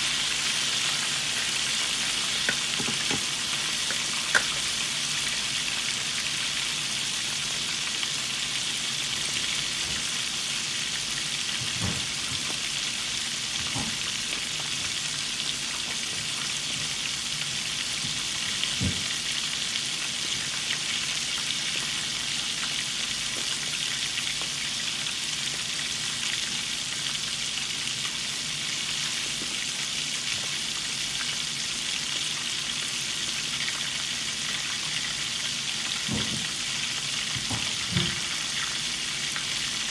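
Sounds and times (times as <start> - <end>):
chicken deep-frying in oil: 0.0 - 39.9.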